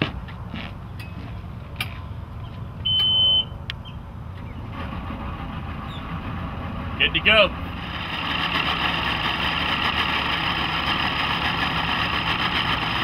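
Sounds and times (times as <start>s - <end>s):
low steady rumble: 0.0s - 13.0s
electronic warning beep: 2.8s - 3.6s.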